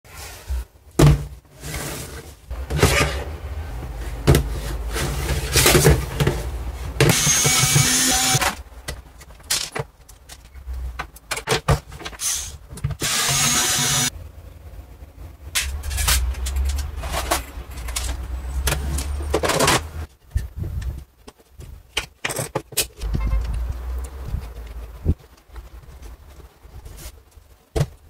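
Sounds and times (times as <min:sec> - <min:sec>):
electric screwdriver whirring: 0:07.1 - 0:08.5, 0:13.0 - 0:14.1
metal parts clicking and knocking: 0:15.5 - 0:19.9.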